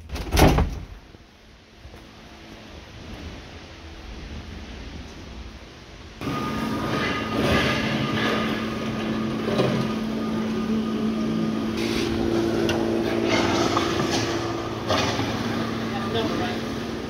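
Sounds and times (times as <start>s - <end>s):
machinery hum and whine: 0.8s - 17.0s
machinery clatter: 6.2s - 17.0s.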